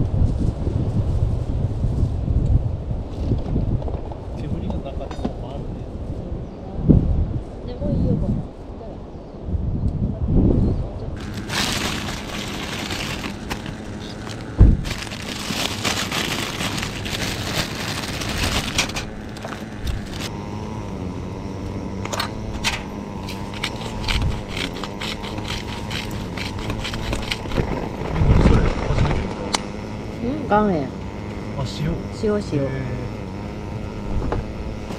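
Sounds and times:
hand grinder crunching salt: 11.2s - 34.9s.

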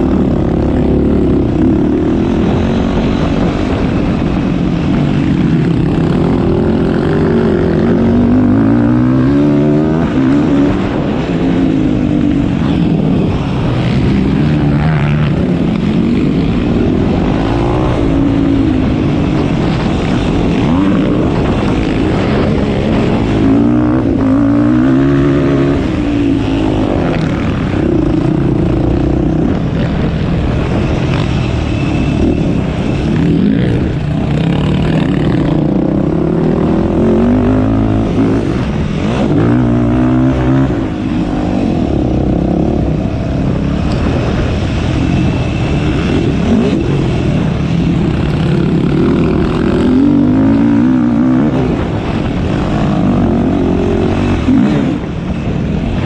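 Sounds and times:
quad engine revving: 5.1s - 31.3s, 32.2s - 55.3s.

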